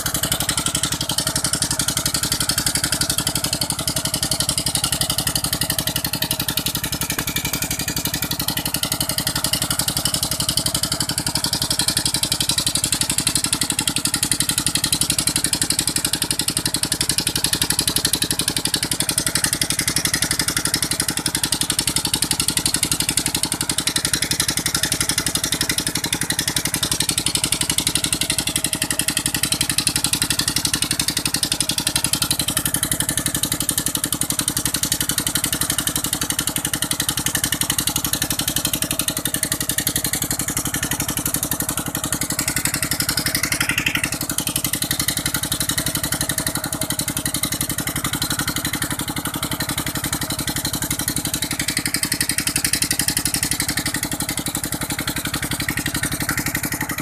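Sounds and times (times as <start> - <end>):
diesel engine running: 0.0 - 57.0.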